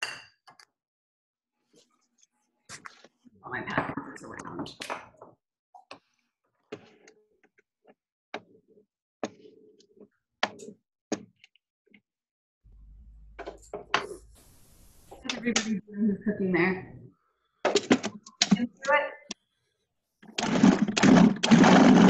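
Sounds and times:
low hum with hiss: 12.7s - 16.7s.

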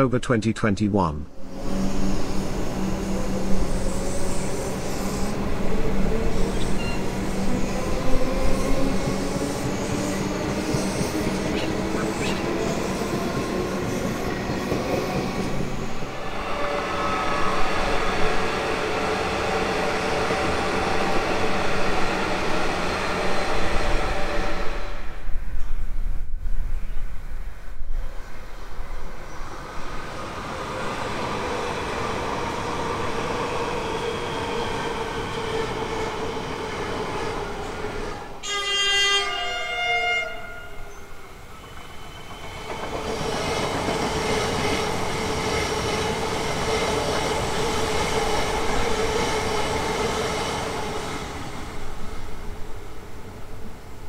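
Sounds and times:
electric train running on rails: 1.3s - 54.0s
train horn: 38.4s - 41.1s.

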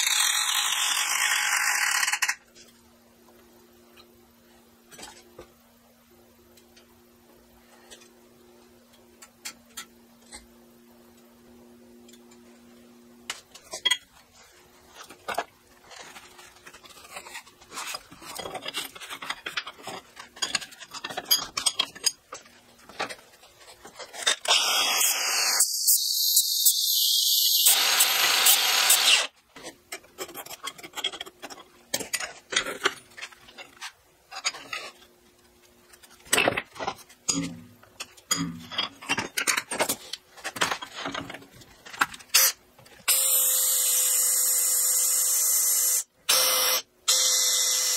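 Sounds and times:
angle grinder grinding steel: 24.5s - 29.3s
cordless drill boring into steel: 24.5s - 29.3s, 43.1s - 47.9s
metal clanks and taps: 36.3s - 40.0s.

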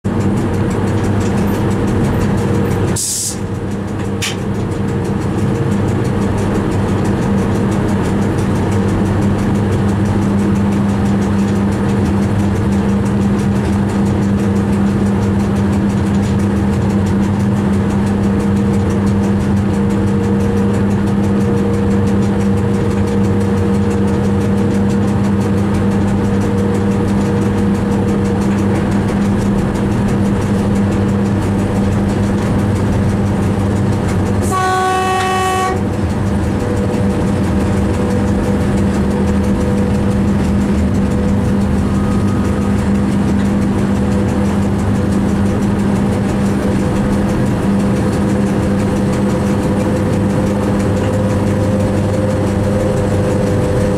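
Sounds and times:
train motor hum: 0.0s - 53.9s
wheels rumbling on rails: 0.0s - 53.9s
sharp hiss: 3.0s - 3.4s.

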